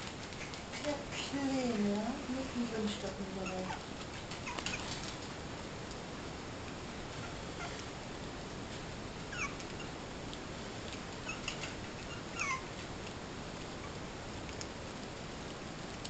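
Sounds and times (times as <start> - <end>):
puppies squeaking and whimpering: 3.4 - 5.1, 7.2 - 7.8, 9.3 - 10.0, 11.2 - 12.8.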